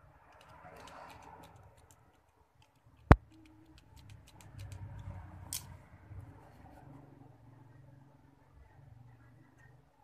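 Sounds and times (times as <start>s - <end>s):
pens ticking and rustling on table: 0.2s - 5.7s.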